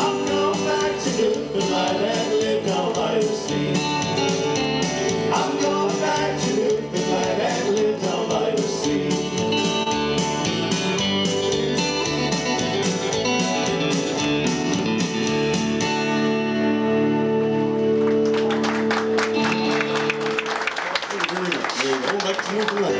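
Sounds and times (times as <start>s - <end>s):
acoustic guitar strumming: 0.0s - 18.4s
bass guitar: 0.0s - 20.9s
people clapping: 17.9s - 22.9s.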